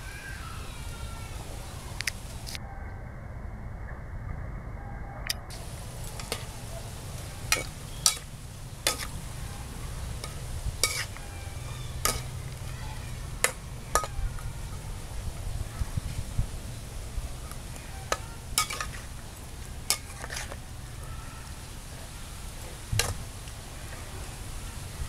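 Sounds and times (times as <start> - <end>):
food sizzling: 5.5 - 25.0
metal spatula clinking in wok: 7.5 - 9.1, 18.1 - 19.0.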